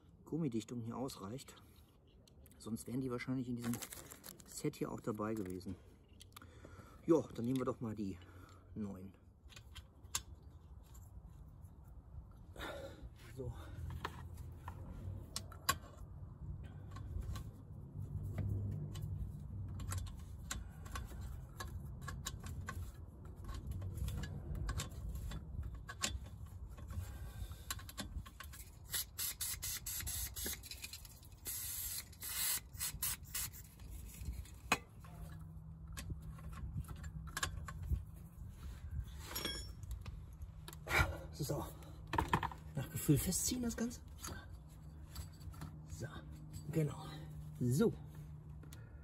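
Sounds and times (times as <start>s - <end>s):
small metal clicks and scrapes: 9.4s - 12.0s, 13.9s - 40.8s, 42.0s - 46.9s.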